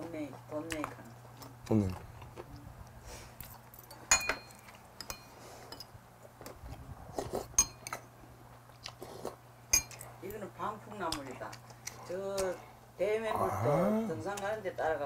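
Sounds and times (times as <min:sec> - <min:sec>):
utensils clinking on ceramic bowls: 0:03.7 - 0:05.9, 0:07.6 - 0:08.0, 0:09.7 - 0:10.0.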